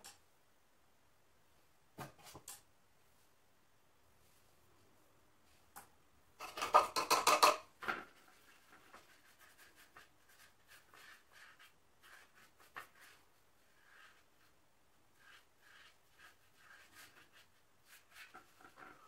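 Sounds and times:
paintbrush scratchy strokes on canvas: 0:08.2 - 0:19.0.

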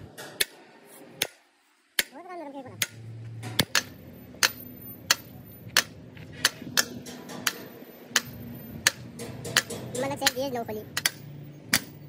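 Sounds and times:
low hum: 0:02.6 - 0:10.0
hammer striking metal: 0:02.8 - 0:12.0.

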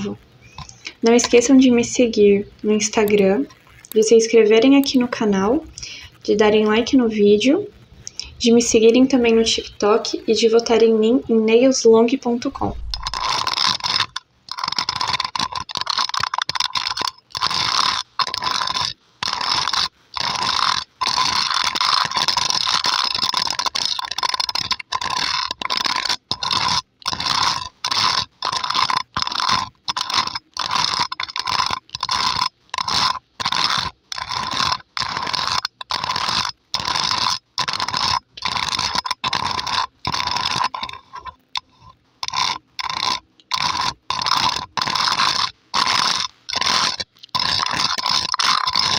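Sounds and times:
fingernails scratching microphone grille: 0:12.4 - 0:48.9.

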